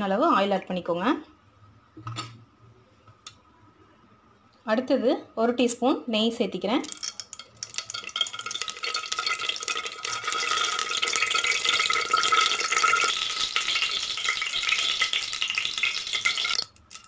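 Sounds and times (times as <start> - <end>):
oil sizzling and crackling: 6.8 - 17.0.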